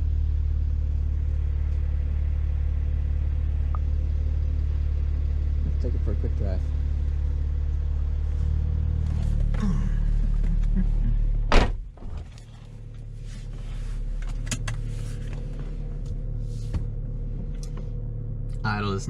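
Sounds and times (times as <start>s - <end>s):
car engine idling: 0.0s - 19.0s
car door shutting: 11.4s - 12.6s.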